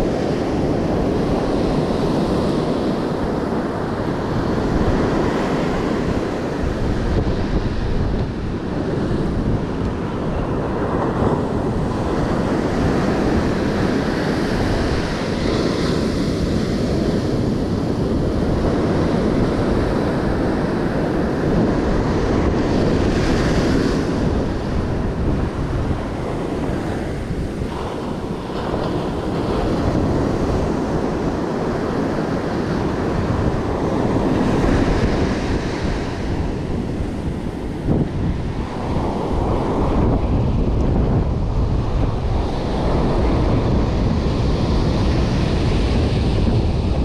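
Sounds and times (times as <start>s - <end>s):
surf breaking on beach: 0.0s - 47.0s
wind buffeting microphone: 0.0s - 47.0s.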